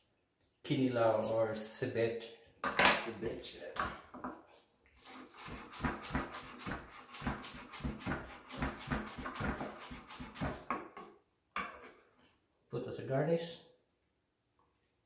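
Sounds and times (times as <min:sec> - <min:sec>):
knife chopping on wooden board: 0:05.4 - 0:11.0.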